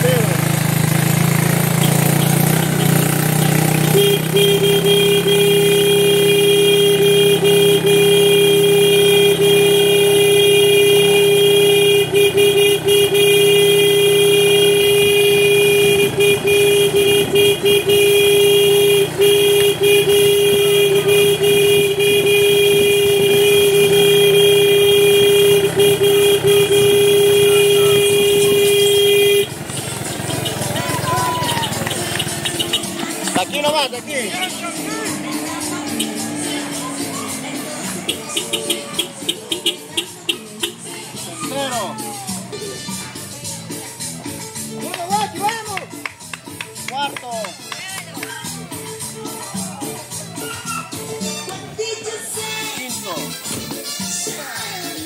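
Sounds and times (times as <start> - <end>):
low engine hum: 0.0 - 40.9
vehicle horn long note: 1.8 - 33.5, 34.1 - 41.2.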